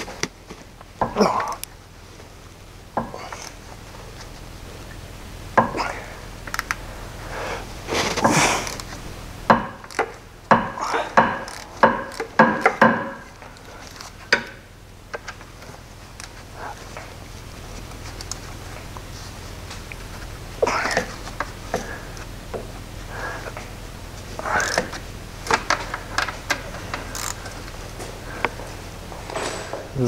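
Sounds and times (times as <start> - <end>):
wrench clicking and knocking: 9.5 - 15.3, 24.6 - 27.4.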